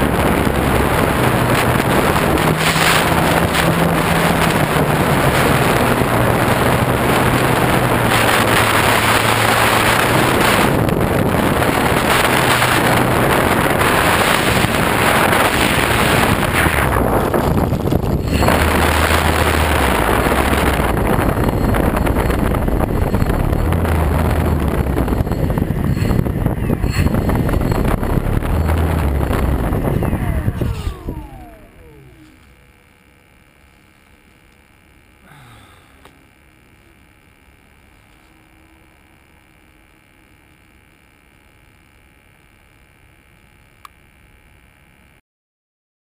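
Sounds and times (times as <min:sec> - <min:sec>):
wind rushing over camera: 0:00.0 - 0:32.7
plane rolling on grass: 0:00.0 - 0:34.6
electric motor and propeller hum: 0:00.0 - 0:45.2.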